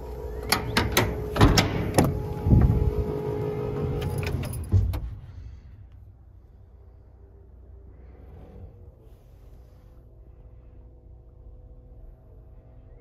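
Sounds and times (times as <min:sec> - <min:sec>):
truck door shutting: 0:00.4 - 0:05.2.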